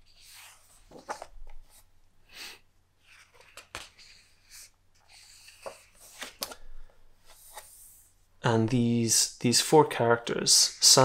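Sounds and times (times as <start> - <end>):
book pages rustling: 0.0 - 1.9, 3.0 - 8.1.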